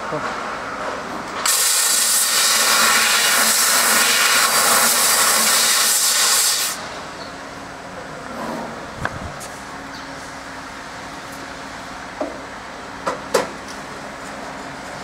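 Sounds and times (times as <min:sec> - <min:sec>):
machine noise: 0:00.0 - 0:12.4
hiss of gas from laser cutter: 0:01.4 - 0:06.9.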